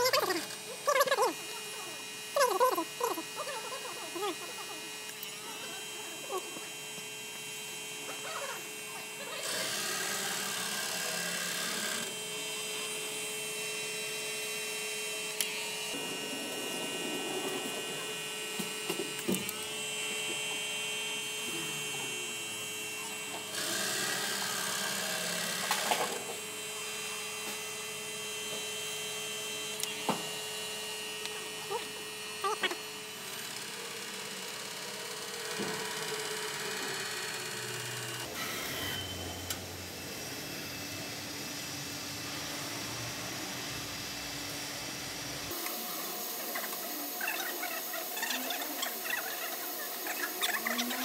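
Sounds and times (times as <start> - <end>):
stepper motors humming and whining: 0.0 - 51.0
rushing noise: 15.9 - 18.6.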